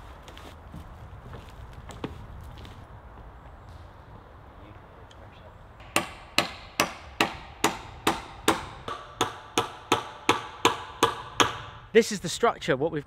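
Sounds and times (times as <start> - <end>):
hammer striking nails: 5.8 - 11.9.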